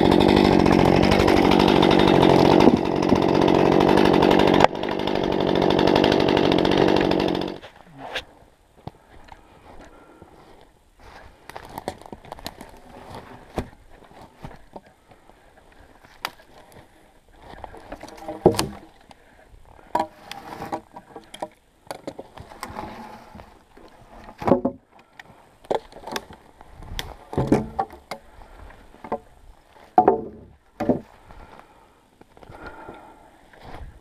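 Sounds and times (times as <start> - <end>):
twigs rustling: 7.6 - 32.8
sharp wooden knocks: 27.4 - 28.1, 30.0 - 31.1.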